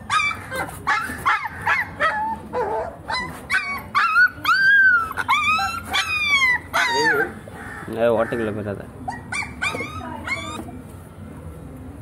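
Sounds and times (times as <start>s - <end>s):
puppy whimpering and yelping: 0.0s - 7.4s, 9.1s - 10.7s.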